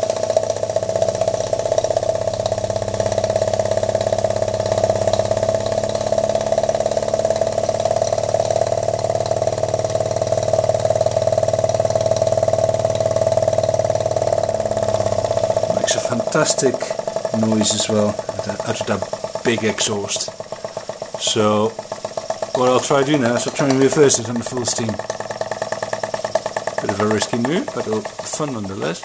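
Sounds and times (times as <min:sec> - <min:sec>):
model steam engine exhaust beat: 0:00.0 - 0:29.0.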